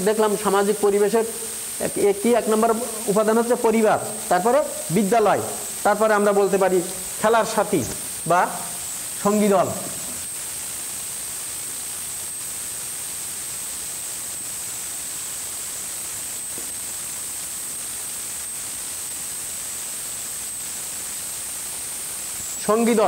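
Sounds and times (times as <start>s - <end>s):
high-pitched whine: 0.0s - 23.0s
steady hiss: 0.0s - 23.0s.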